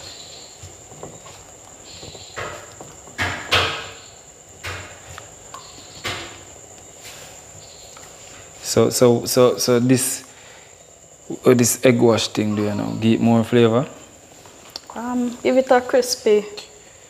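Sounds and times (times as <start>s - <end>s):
soft knocks and rustles: 0.6s - 3.9s.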